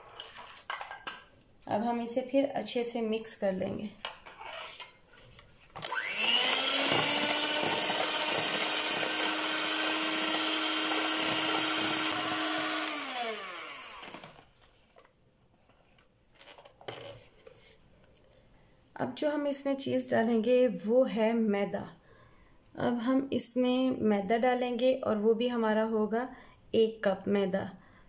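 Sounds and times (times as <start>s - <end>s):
electric hand mixer whining: 5.8s - 14.5s.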